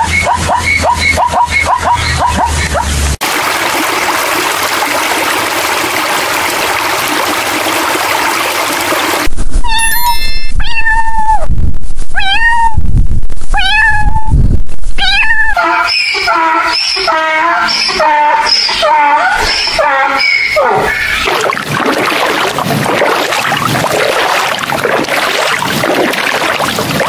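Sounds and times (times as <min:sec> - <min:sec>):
cat meowing: 0:09.6 - 0:11.5, 0:12.2 - 0:12.8, 0:13.5 - 0:14.3, 0:15.0 - 0:15.6.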